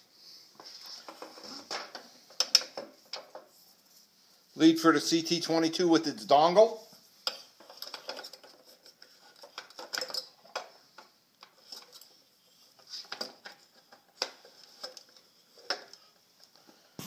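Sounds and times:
small clicks taps and rustles: 0.6 - 3.6, 7.2 - 12.2.

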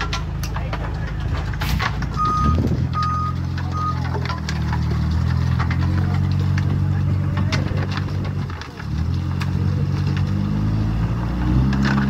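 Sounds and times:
engine running steadily: 0.0 - 12.0
reversing alarm beeping: 2.2 - 4.0.

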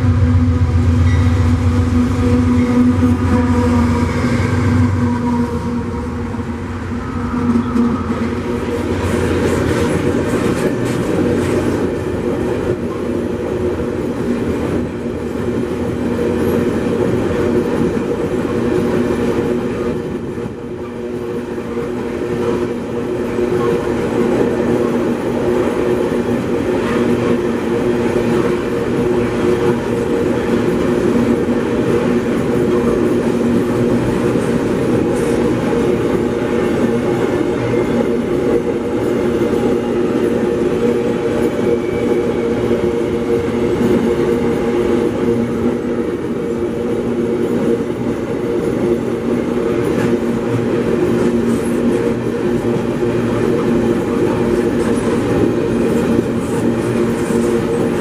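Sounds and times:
locomotive engine rumble: 0.0 - 11.8.

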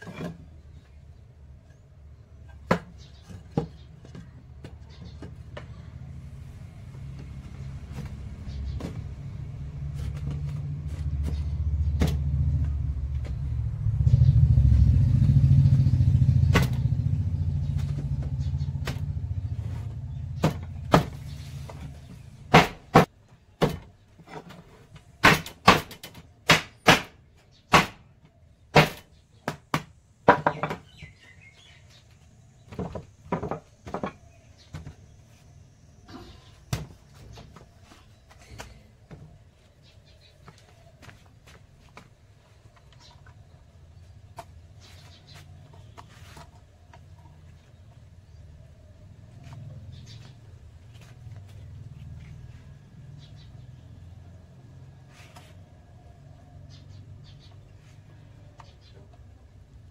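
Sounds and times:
low motor rumble: 4.2 - 22.5.

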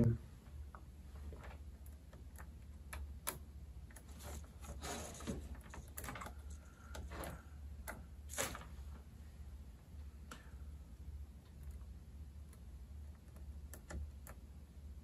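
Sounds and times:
test probes clicking and tapping: 1.7 - 4.1, 11.4 - 14.6.

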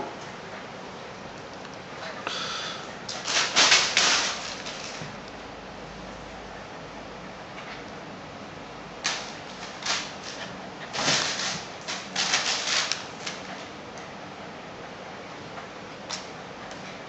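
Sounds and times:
dogs scuffling: 3.1 - 5.2, 9.1 - 13.7.

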